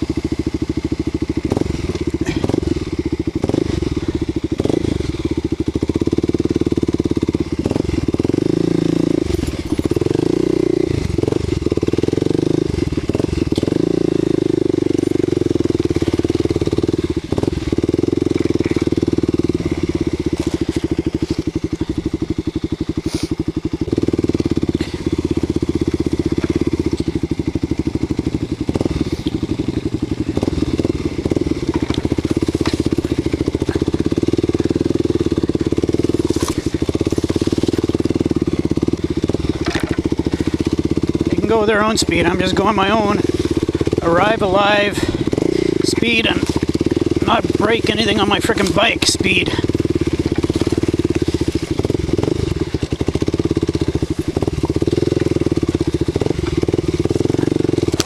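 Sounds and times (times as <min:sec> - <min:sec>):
motorcycle engine revving: 0:00.0 - 0:58.0
clicks and knocks of bike: 0:19.7 - 0:22.1, 0:26.2 - 0:27.3, 0:31.6 - 0:34.6, 0:35.5 - 0:40.7, 0:52.7 - 0:58.0.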